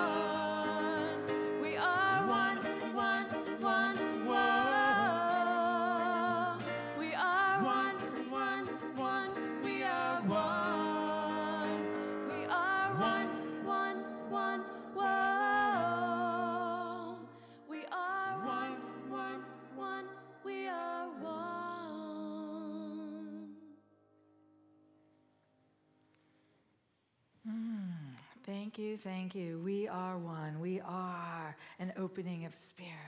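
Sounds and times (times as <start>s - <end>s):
person singing with vibrato: 0.0s - 23.8s.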